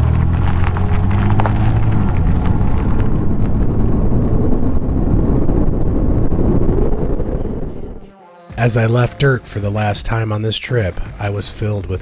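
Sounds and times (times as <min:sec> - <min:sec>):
car tyre and engine noise: 0:00.0 - 0:08.0
wind rushing over microphone: 0:00.0 - 0:08.1.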